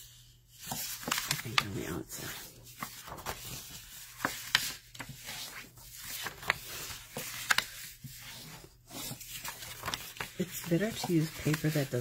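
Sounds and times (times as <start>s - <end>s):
paper ticks: 9.4s - 11.9s.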